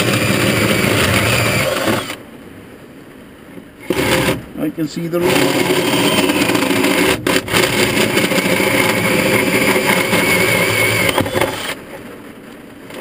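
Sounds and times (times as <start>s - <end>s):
cordless drill drilling: 0.0s - 2.2s, 3.8s - 4.4s, 5.2s - 11.8s.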